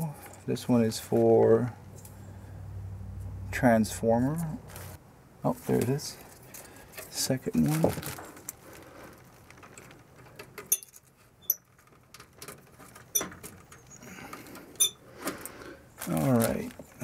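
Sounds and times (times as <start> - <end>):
wires rustling and scraping: 4.3 - 17.0.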